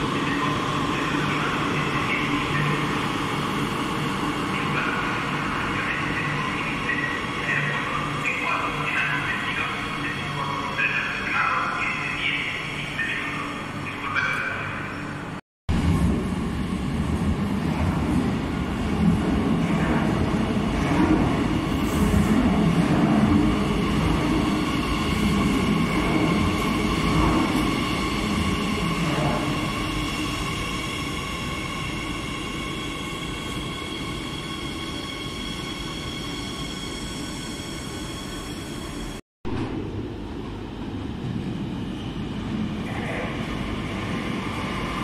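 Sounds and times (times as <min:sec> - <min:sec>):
train approaching rumble: 0:00.0 - 0:45.0
train wheels rumbling on track: 0:15.7 - 0:36.9.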